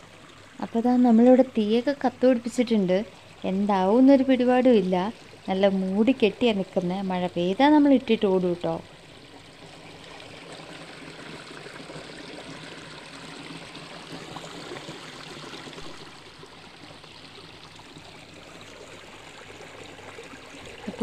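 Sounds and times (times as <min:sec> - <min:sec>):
stream flowing over rocks: 0:08.9 - 0:21.0.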